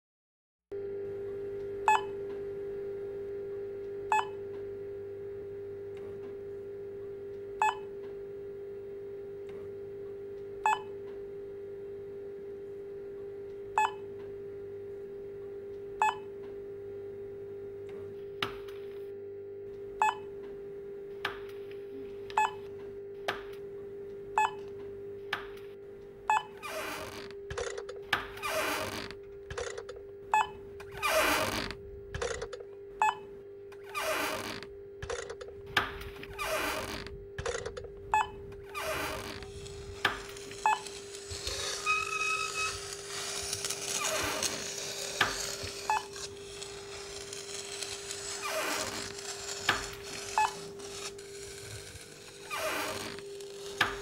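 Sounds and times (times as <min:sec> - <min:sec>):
checkout scanner beeps: 0:01.9 - 0:02.1, 0:07.6 - 0:07.9, 0:10.7 - 0:10.9, 0:20.0 - 0:20.3, 0:22.3 - 0:22.6, 0:24.4 - 0:24.6, 0:26.3 - 0:27.9, 0:29.6 - 0:30.6, 0:32.2 - 0:33.3, 0:37.4 - 0:38.4
low hum: 0:16.0 - 0:54.0
scraping noises: 0:35.1 - 0:54.0.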